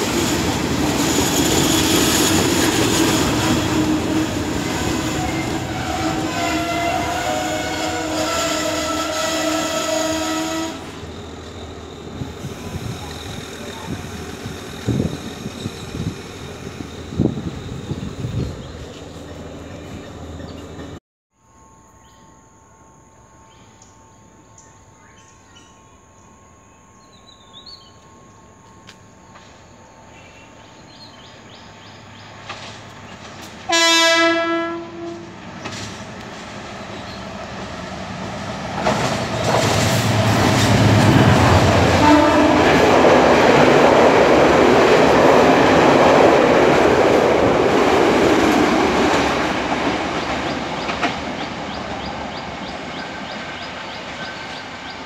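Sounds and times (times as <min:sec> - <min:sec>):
train rumbling on rails: 0:00.0 - 0:21.0, 0:25.0 - 0:55.0
train horn blast: 0:03.2 - 0:11.1, 0:33.7 - 0:35.4, 0:40.0 - 0:43.4.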